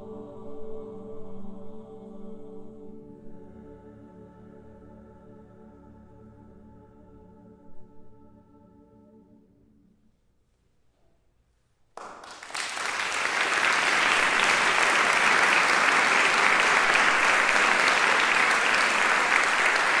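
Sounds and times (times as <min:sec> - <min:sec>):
audience applause: 0:12.0 - 0:20.0.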